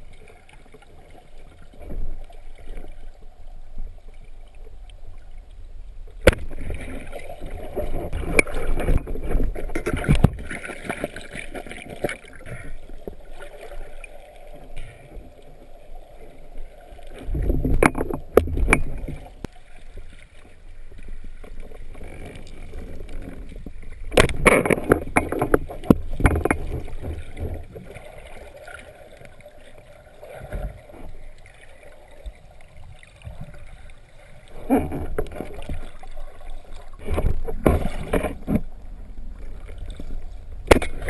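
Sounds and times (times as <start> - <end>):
water splashing in shallows: 6.2 - 41.0.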